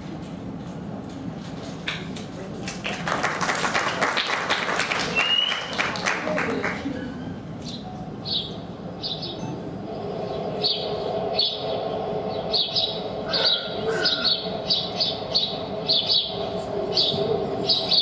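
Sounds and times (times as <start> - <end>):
steady low hum: 0.0 - 18.0
birds chirping: 7.6 - 18.0.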